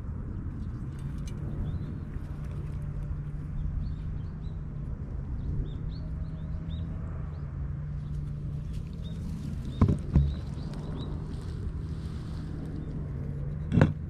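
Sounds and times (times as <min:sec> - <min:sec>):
low hum and rumble: 0:00.0 - 0:14.0
small birds chirping: 0:00.3 - 0:13.9
sharp thumps: 0:09.6 - 0:10.7.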